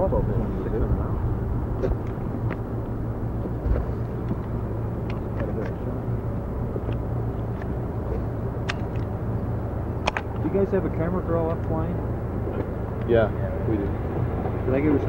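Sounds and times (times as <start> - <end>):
distant jet engines rumbling: 0.0 - 15.0.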